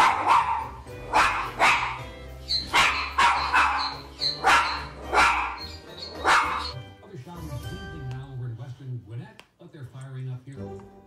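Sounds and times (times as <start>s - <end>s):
small dog barking: 0.0s - 6.7s.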